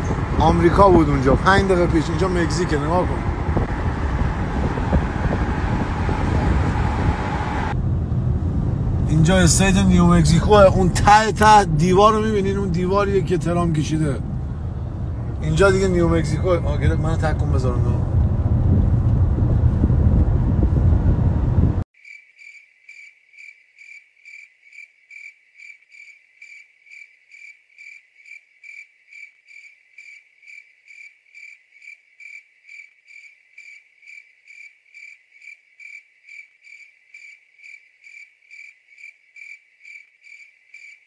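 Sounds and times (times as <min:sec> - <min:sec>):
car road and engine noise: 0:00.0 - 0:21.9
cricket-like chirping: 0:22.0 - 0:41.0.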